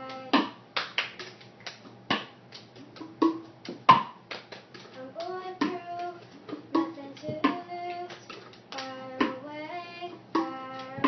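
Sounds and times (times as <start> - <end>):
girl singing: 0.0 - 0.6, 4.9 - 11.0
hand claps: 0.0 - 9.4, 10.4 - 11.0.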